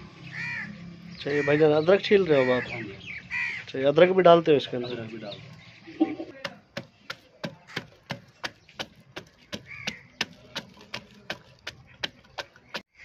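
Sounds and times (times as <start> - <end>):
wooden pestle pounding in mortar: 6.0 - 12.9.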